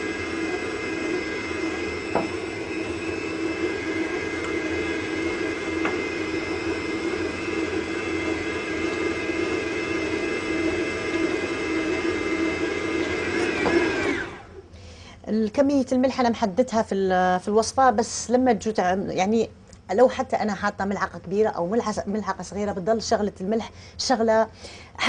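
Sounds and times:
stand mixer motor whining: 0.0 - 14.7.

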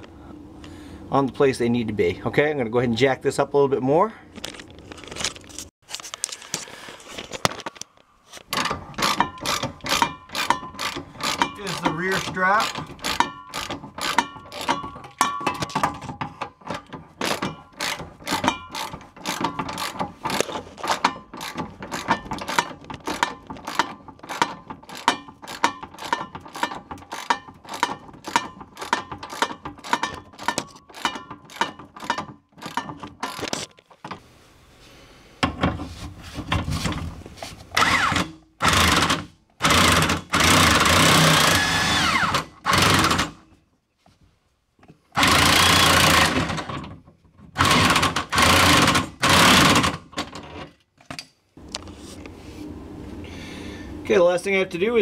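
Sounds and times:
hand ratchet clicking: 8.6 - 15.9, 16.7 - 33.5, 47.6 - 50.0
power wrench bursts: 9.0 - 14.9, 37.8 - 43.4, 45.1 - 46.8, 47.6 - 50.1.

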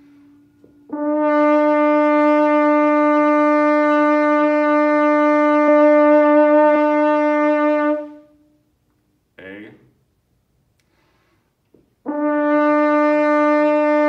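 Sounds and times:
french horn long note: 0.0 - 8.4, 12.0 - 14.0.

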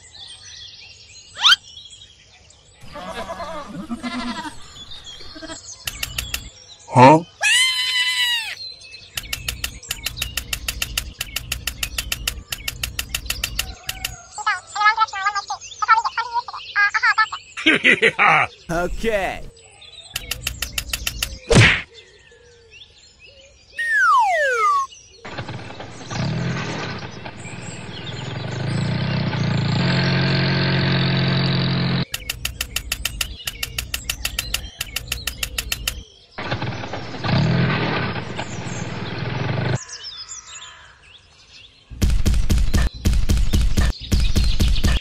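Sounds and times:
small motor clicking rapidly: 5.9 - 6.5, 9.2 - 14.2, 20.2 - 21.5, 32.0 - 36.0.

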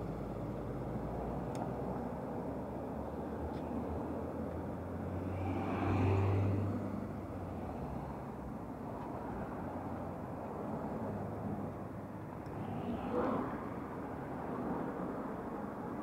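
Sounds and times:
vehicle passing by: 3.0 - 8.3, 12.6 - 15.6.

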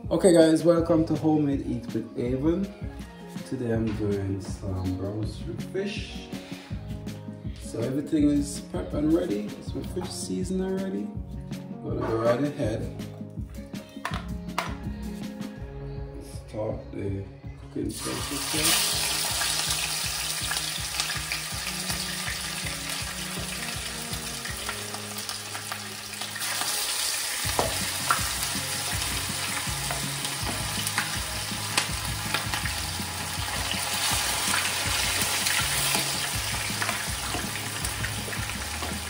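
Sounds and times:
fish sizzling in oil: 18.0 - 39.0.

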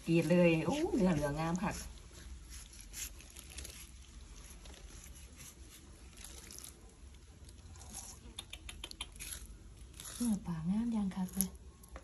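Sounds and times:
knife slicing fish: 0.2 - 6.7.

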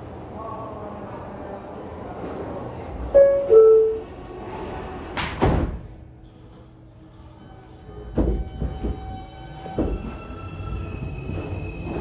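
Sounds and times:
doors sliding shut with thud: 4.5 - 5.9
train knocks: 8.0 - 10.4.

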